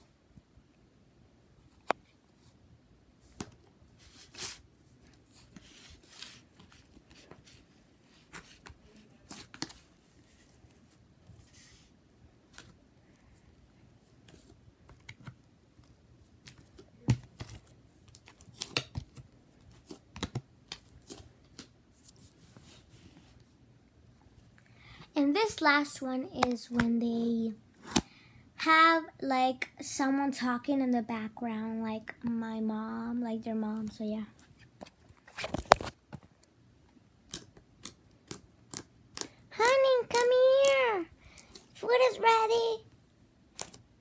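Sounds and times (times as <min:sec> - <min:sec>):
sticky slime clicking and crackling: 0:37.2 - 0:40.8.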